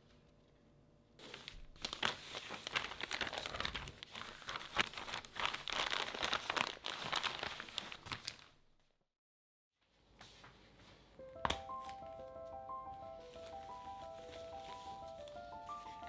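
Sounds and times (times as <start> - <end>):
plastic bag crinkling: 1.2 - 8.6.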